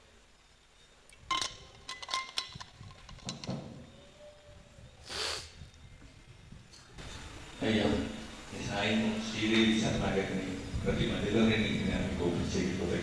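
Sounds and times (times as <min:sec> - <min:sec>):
light clinks and knocks: 0:01.2 - 0:03.9.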